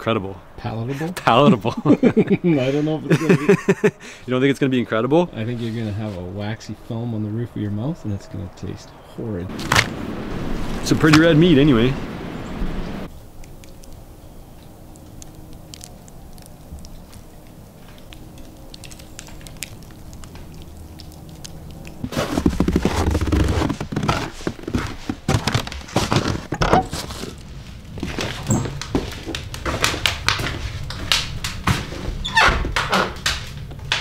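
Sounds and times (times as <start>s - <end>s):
footsteps crunching on snow: 22.0s - 30.9s
steps on wooden boards: 22.0s - 34.0s.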